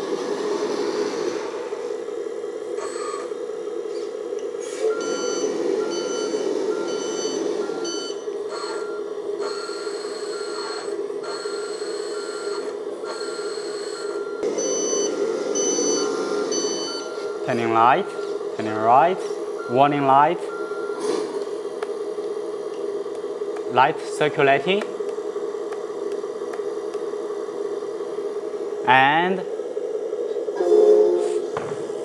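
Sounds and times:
simulated diesel engine running: 0:00.0 - 0:32.0
electronic reverse alarm beeping: 0:02.8 - 0:03.3, 0:04.8 - 0:18.4, 0:19.6 - 0:21.1.

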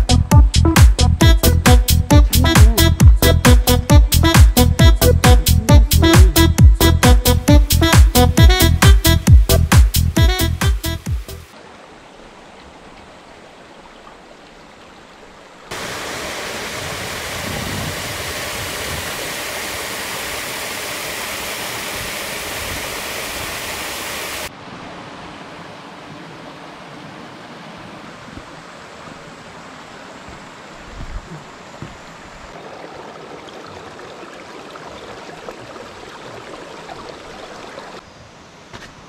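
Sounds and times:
stream water running over rocks: 0:11.5 - 0:38.0.

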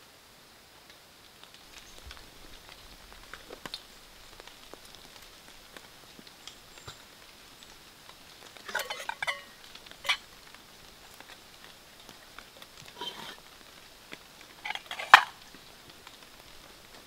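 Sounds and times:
metal cookware clinking: 0:08.6 - 0:10.2, 0:12.9 - 0:13.4, 0:14.6 - 0:15.4.

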